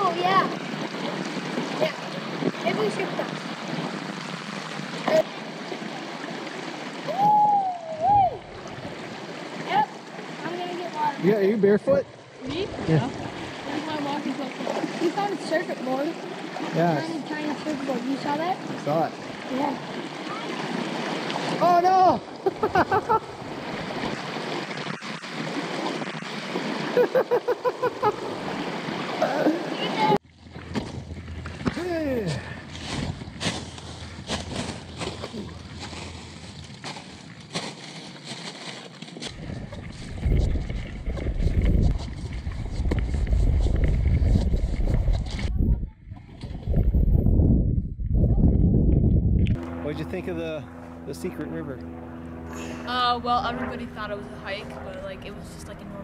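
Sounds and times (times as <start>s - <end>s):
creek flowing over rocks: 0.0s - 22.4s
splashing of people wading: 0.0s - 45.6s.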